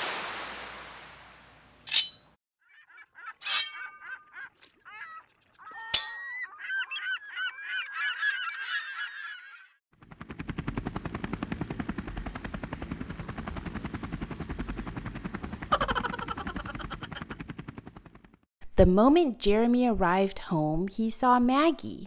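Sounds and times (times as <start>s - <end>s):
flock of birds calling: 2.7s - 9.8s
helicopter rotor chopping: 9.9s - 18.5s.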